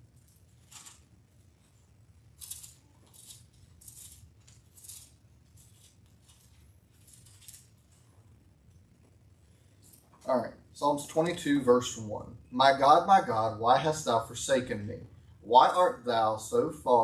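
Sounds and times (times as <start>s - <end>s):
pages turning: 0.4s - 1.1s.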